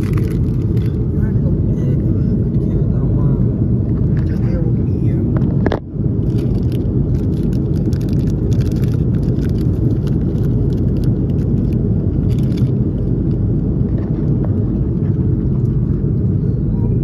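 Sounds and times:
crackly rustles: 0.0s - 1.1s, 5.4s - 16.0s
airliner cabin drone: 0.0s - 17.0s.

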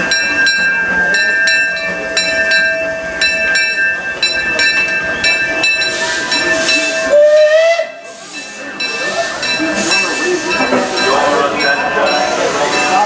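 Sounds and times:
locomotive bell ringing: 0.0s - 13.0s
steam hissing: 5.3s - 13.0s.

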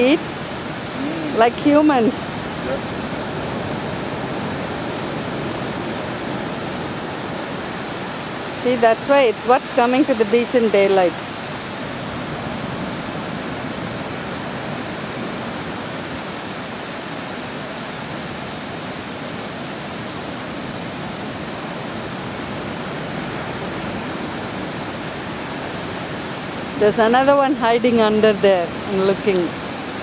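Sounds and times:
surf washing on shore: 0.0s - 30.0s.

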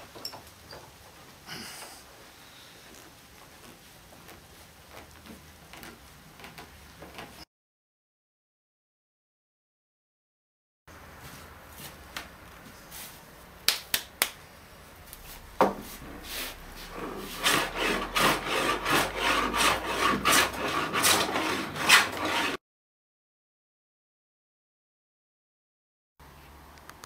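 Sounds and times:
hand scraping wood: 15.1s - 22.6s
sharp knocks: 15.4s - 16.0s.

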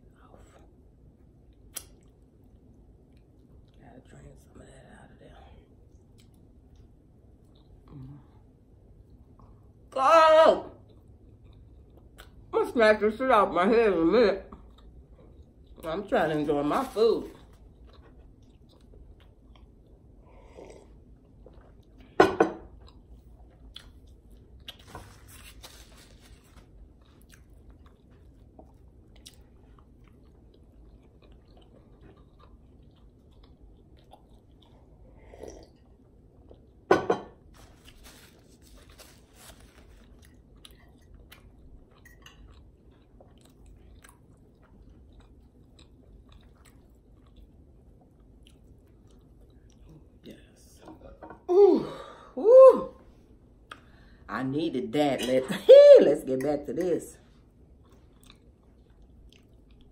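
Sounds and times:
person sipping and swallowing: 20.3s - 22.1s, 33.9s - 36.7s.

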